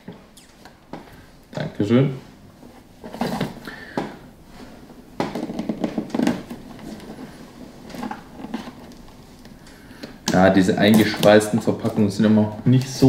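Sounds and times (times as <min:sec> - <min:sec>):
plastic wrap crinkling: 0:05.3 - 0:13.0.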